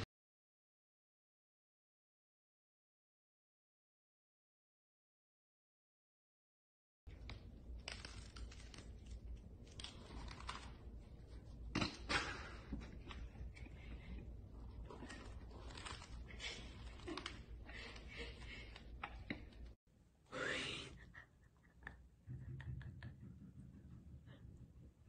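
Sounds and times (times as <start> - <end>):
cats crunching dry kibble: 7.1 - 19.6.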